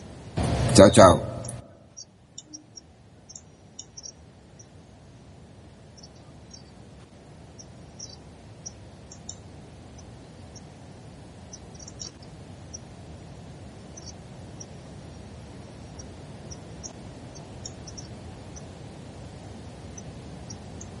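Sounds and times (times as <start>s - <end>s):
low background noise: 0.0s - 21.0s
faint high-pitched ticks: 2.0s - 4.7s, 6.0s - 10.7s, 15.9s - 18.7s.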